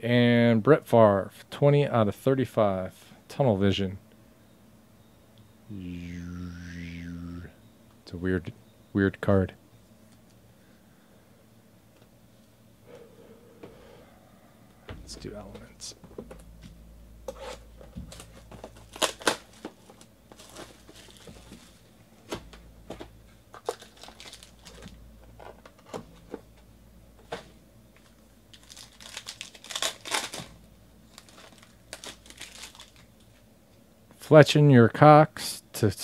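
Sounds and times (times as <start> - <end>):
cardboard rustling: 17.3 - 26.4
wrapper crinkling and tearing: 18.1 - 21.9, 23.5 - 25.0, 28.5 - 33.4.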